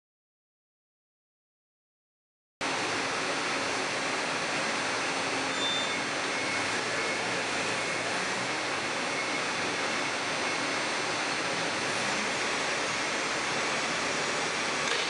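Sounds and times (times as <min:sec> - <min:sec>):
forklift running: 0:02.6 - 0:15.0.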